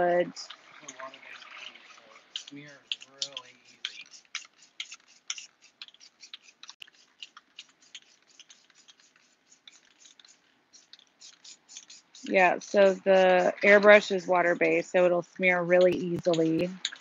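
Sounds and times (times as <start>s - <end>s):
spray can rattling: 1.5s - 14.8s.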